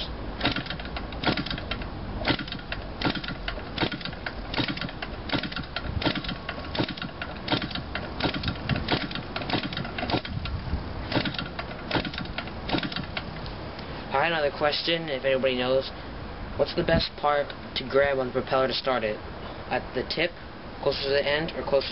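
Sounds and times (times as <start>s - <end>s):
model engine propeller slaps and clicks: 0.4s - 13.5s.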